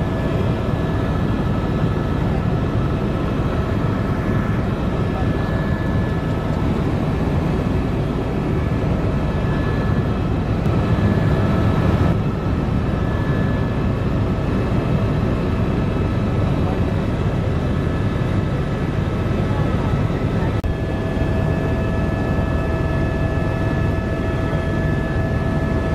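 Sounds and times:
helicopter engine and rotor rumble: 0.0 - 25.9.

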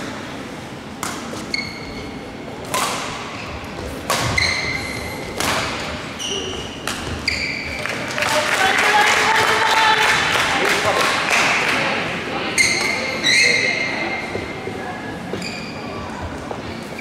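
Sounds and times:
racket hitting shuttlecock: 1.0 - 1.4, 2.6 - 3.4, 4.0 - 6.0, 6.8 - 7.4
shoes squeaking on court: 1.2 - 2.2, 3.3 - 5.4, 6.1 - 7.9, 15.3 - 17.0.

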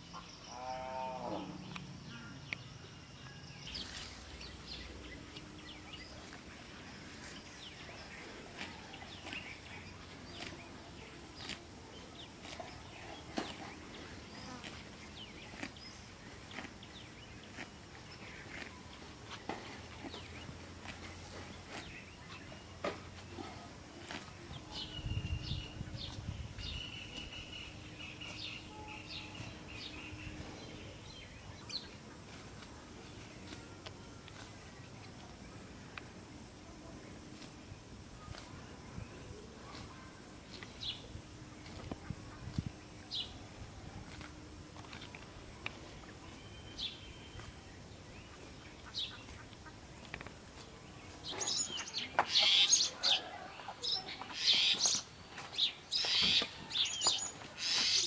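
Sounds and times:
bird calls: 44.9 - 58.0.

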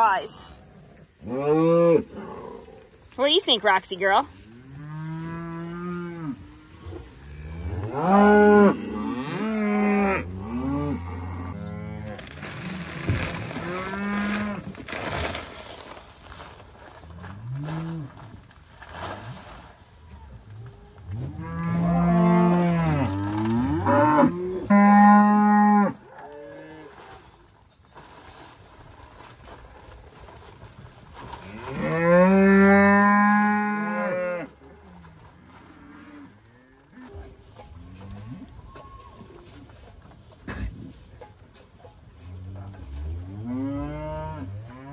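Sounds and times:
cows mooing: 4.5 - 12.8, 21.2 - 26.9.

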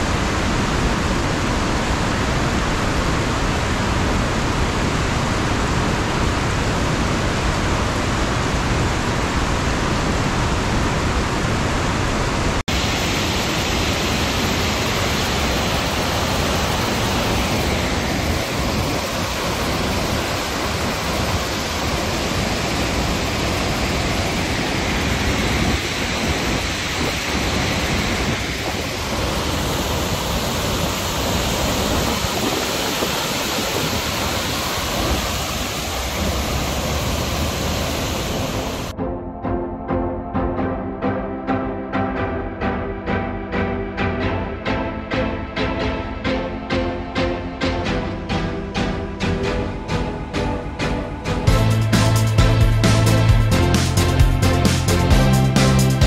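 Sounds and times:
road noise: 0.0 - 38.9
heavy rain: 0.0 - 39.0, 48.2 - 56.0.

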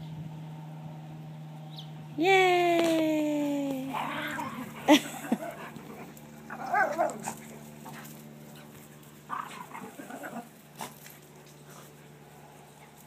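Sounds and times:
dogs playing: 3.7 - 13.0.

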